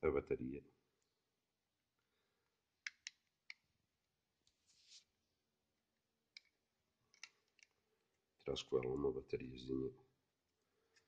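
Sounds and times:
small plastic clicks: 2.8s - 3.7s, 6.3s - 7.8s.

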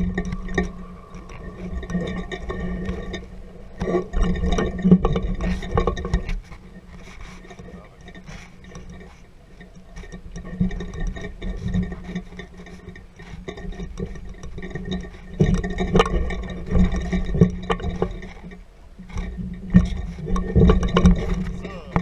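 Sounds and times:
steady low rumble: 0.0s - 6.9s, 20.8s - 22.0s.

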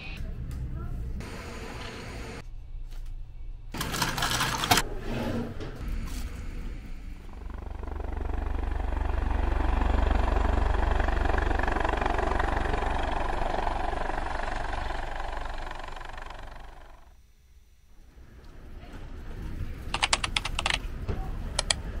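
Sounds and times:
engine-like drone with rushing: 5.0s - 20.8s.

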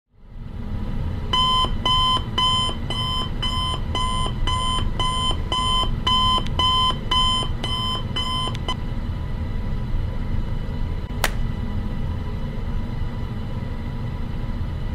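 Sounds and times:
steady low hum: 0.1s - 14.9s
phone alarm beeping: 1.4s - 8.8s.

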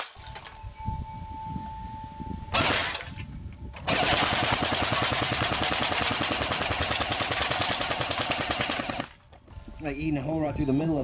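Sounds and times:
electric bb rifle firing burst: 2.6s - 3.0s, 3.9s - 9.2s.

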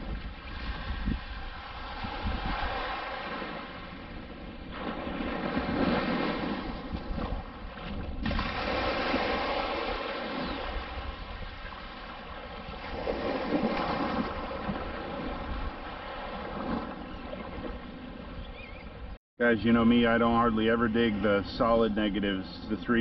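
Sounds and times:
small waves washing on shore: 0.0s - 18.4s
wind on microphone: 0.0s - 23.0s.

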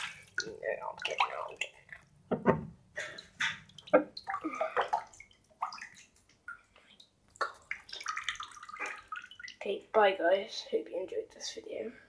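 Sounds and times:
bath water splashing: 0.0s - 2.4s, 3.0s - 9.7s
water dripping: 0.0s - 2.4s, 3.0s - 10.0s.

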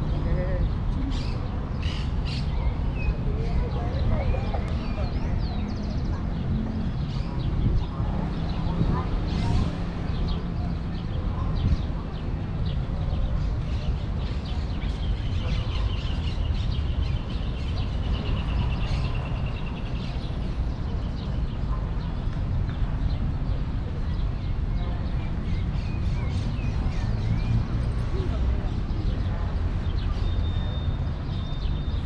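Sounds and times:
birds chirping: 0.0s - 32.0s.

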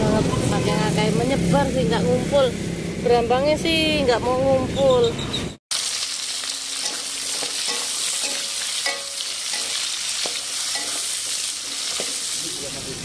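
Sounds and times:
vegetables sizzling in oil: 5.7s - 13.0s.

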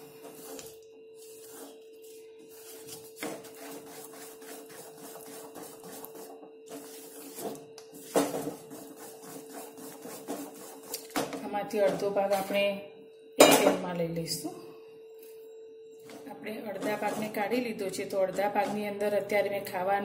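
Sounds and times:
spatula scraping metal pan: 0.0s - 11.1s, 16.7s - 19.0s
steady hum: 0.0s - 20.0s.

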